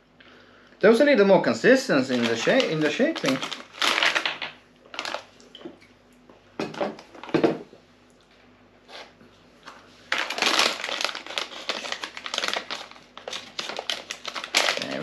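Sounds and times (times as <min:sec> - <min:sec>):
sweets packaging crinkling: 0:02.0 - 0:05.5, 0:10.1 - 0:15.0.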